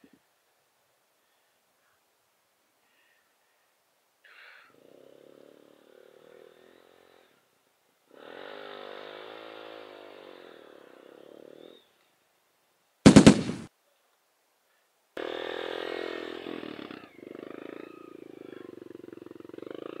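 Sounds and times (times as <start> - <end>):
loud crackling burst: 13.1 - 13.7.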